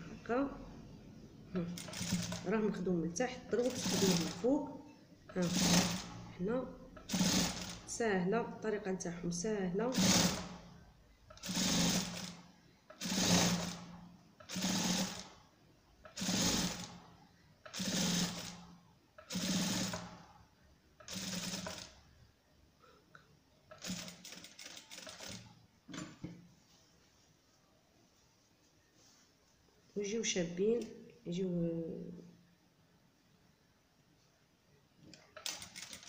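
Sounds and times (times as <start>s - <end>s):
sewing machine stitching: 1.6s - 2.5s, 3.5s - 4.5s, 5.3s - 6.2s, 7.0s - 7.9s, 9.9s - 10.6s, 11.3s - 15.4s, 16.1s - 17.0s, 17.7s - 18.6s, 19.2s - 20.2s, 21.0s - 22.0s, 23.7s - 25.6s, 35.3s - 36.0s.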